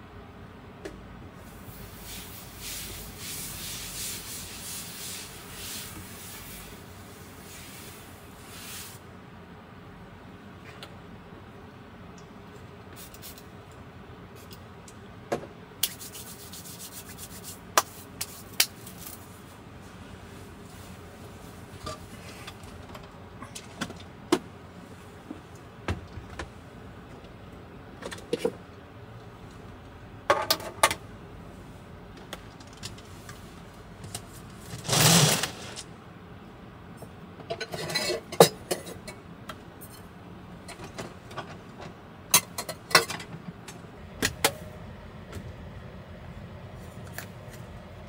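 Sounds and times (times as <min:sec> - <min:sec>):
steady low hiss: 0:00.0 - 0:10.5.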